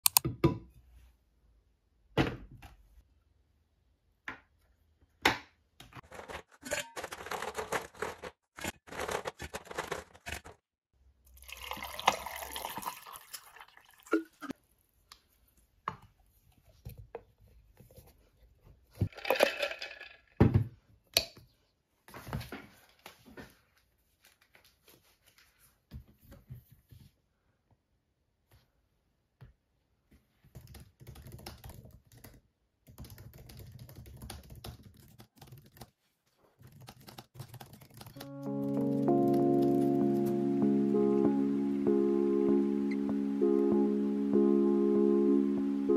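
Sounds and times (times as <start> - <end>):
water pouring into steel tumbler: 11.3 - 14.4.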